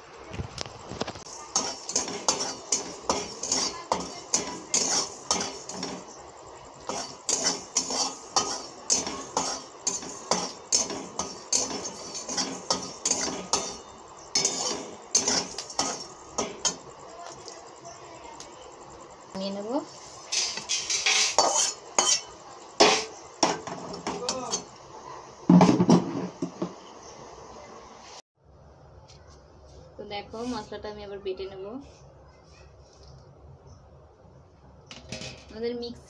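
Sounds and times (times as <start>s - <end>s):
metal spatula scraping a pan: 1.2s - 6.2s, 6.8s - 16.8s, 19.9s - 24.7s.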